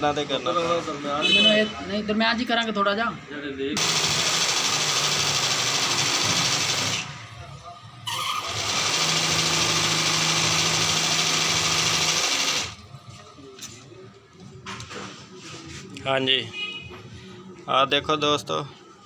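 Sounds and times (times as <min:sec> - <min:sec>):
sewing machine running: 0:03.8 - 0:07.1, 0:08.1 - 0:12.8.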